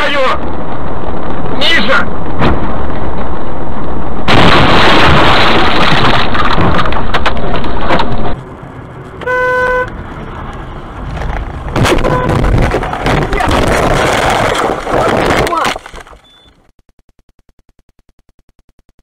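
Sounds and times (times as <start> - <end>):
engine and road noise: 0.0 - 16.7
heavy crashing and scraping: 4.3 - 8.4, 10.9 - 16.2
car horn: 9.2 - 10.0, 11.8 - 12.5.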